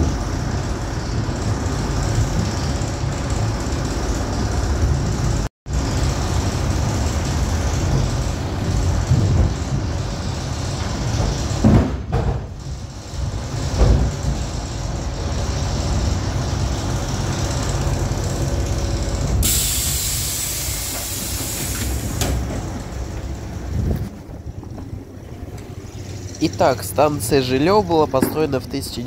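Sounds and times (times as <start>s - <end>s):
electric train rumble and hum: 0.0s - 29.0s
air brakes hissing: 19.3s - 23.5s.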